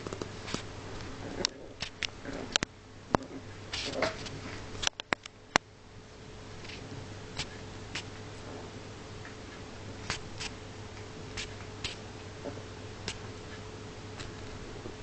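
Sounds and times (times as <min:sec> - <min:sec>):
steady low hum: 0:00.0 - 0:15.0
puppies play-wrestling clicks: 0:01.4 - 0:05.6.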